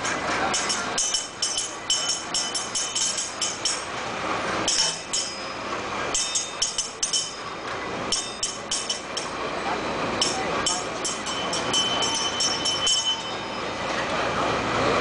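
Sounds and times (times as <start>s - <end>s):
churning water: 0.0s - 15.0s
ride mechanical rumble: 0.0s - 15.0s
small brass bell ringing: 0.5s - 3.9s, 4.7s - 9.4s, 10.2s - 13.9s.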